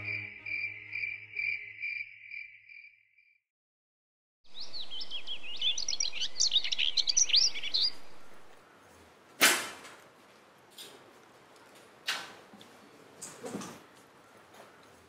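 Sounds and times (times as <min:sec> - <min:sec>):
birdsong chirps and whistles: 0:04.5 - 0:08.6.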